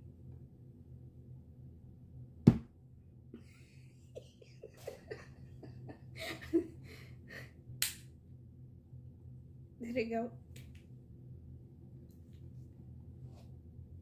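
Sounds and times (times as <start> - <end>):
people laughing and giggling: 3.4 - 6.8.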